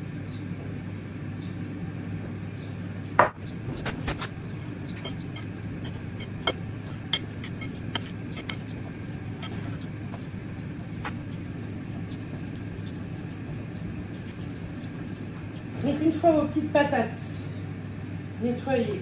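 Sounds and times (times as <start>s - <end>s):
air fryer fan humming: 0.0s - 19.0s
metal spoon clinking bowl: 4.2s - 10.2s.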